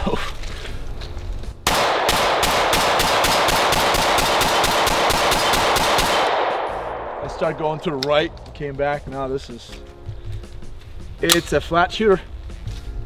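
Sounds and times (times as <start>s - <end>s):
pistol shots with echoes: 1.6s - 8.2s.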